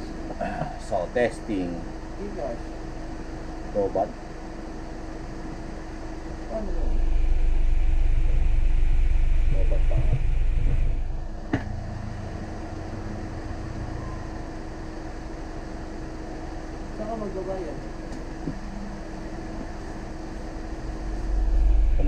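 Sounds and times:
steady electrical hum: 0.0 - 22.0
deep low rumble: 6.7 - 14.7, 21.1 - 22.0.

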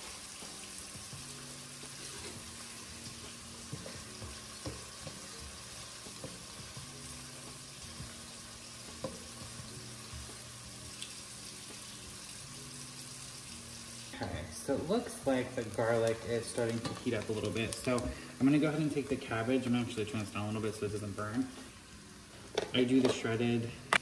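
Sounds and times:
onion and garlic sizzling: 0.0 - 24.0
spatula stirring and tapping pot: 1.9 - 7.0, 8.8 - 10.4, 16.5 - 18.6.

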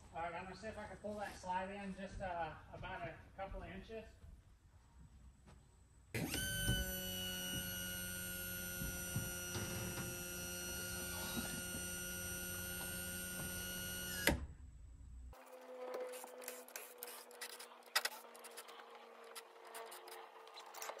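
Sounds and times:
electric motor humming: 6.2 - 14.4.

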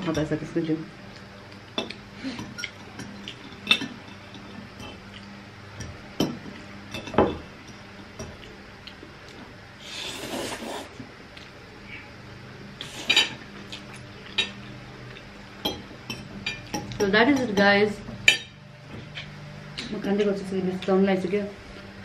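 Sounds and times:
slurping spaghetti: 9.8 - 11.0.

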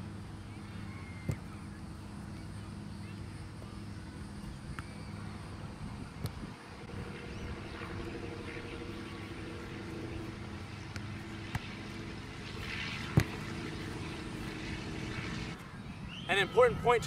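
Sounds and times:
engine hum with low rumble: 0.0 - 15.8
foot kicking soccer ball: 1.2 - 1.4, 10.9 - 12.0, 13.0 - 13.6.

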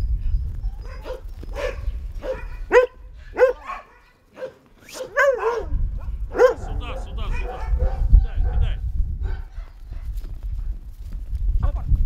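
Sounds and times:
dogs barking: 0.7 - 10.1.

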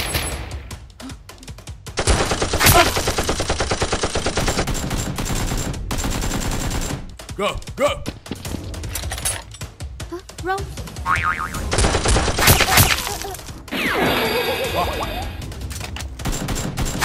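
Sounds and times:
rapid automatic gunfire: 2.0 - 7.3, 11.6 - 13.1, 16.2 - 17.0.

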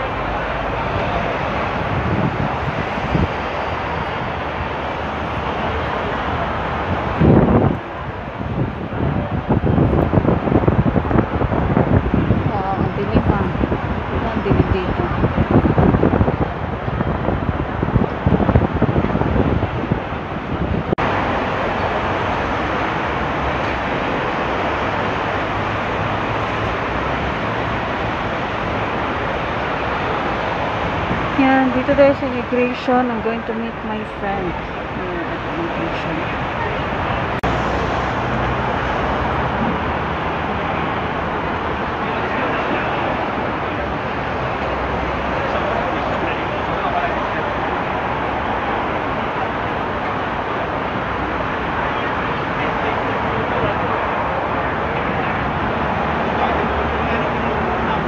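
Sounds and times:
city road traffic: 0.0 - 58.0.

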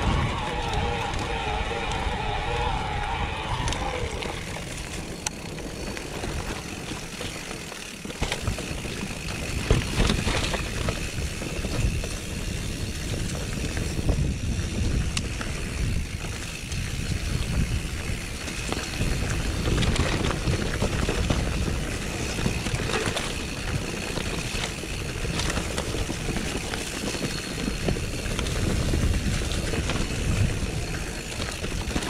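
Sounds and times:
bike tyres rumbling on dirt: 0.0 - 32.0
bike knocks and rattles: 5.4 - 14.2.

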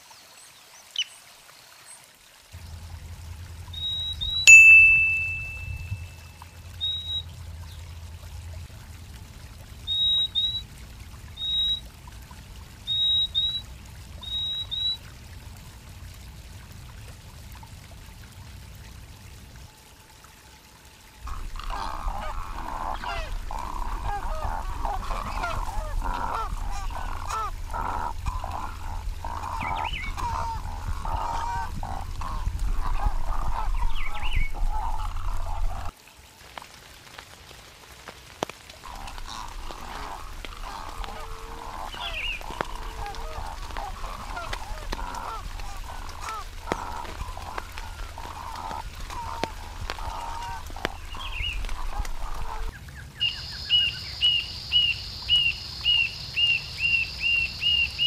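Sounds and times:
chorus of overlapping bird calls: 0.0 - 4.5, 5.1 - 15.1, 19.5 - 36.0, 38.8 - 58.0
low rumble: 2.6 - 4.5, 5.5 - 9.9, 21.3 - 35.9
high paired bird call notes: 3.7 - 7.8, 38.9 - 58.0.

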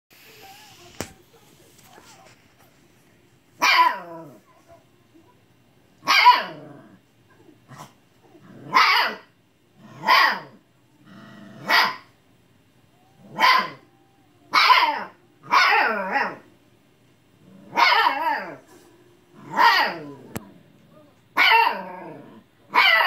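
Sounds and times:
puppy barking and yelling: 3.6 - 4.6, 6.0 - 6.8, 8.6 - 10.6, 11.6 - 12.1, 13.1 - 16.5, 17.7 - 18.6, 19.4 - 20.4, 21.3 - 23.0.

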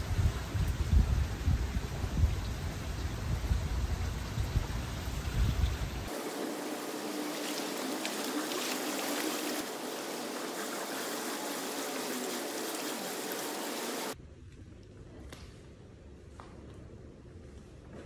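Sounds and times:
pool water trickling and splashing: 1.2 - 14.2.

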